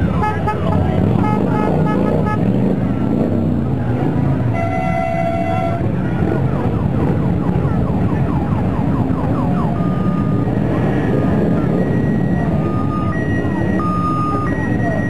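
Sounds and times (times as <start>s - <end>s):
motorcycle engines passing: 0.0s - 15.0s
siren wailing: 4.5s - 15.0s.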